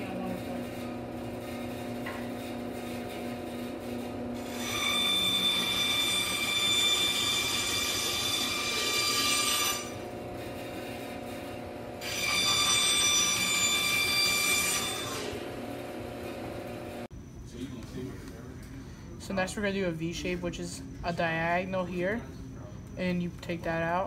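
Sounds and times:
bandsaw cutting wood: 0:00.7 - 0:15.6.

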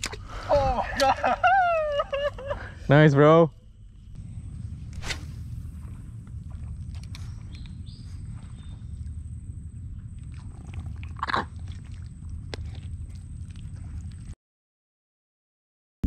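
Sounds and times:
thin high whine: 0:02.5 - 0:10.6
wind rumbling on microphone: 0:03.5 - 0:14.4.

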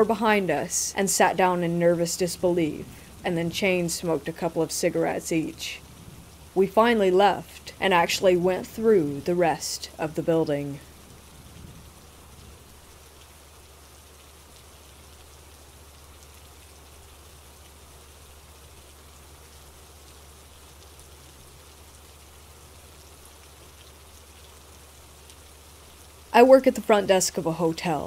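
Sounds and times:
low steady rumble: 0:00.0 - 0:13.1
steady rainfall: 0:00.0 - 0:28.0.

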